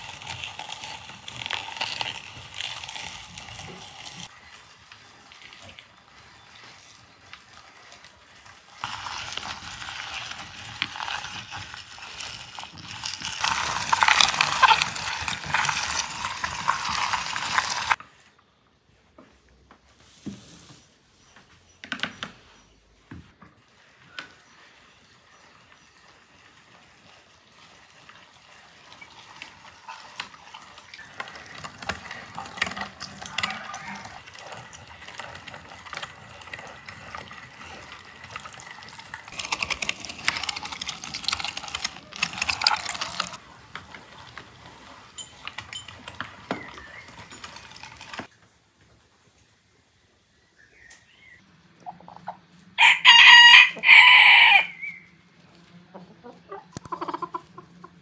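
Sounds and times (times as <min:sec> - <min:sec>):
meat grinder wet crackling: 0:00.0 - 0:18.0, 0:23.6 - 0:48.3.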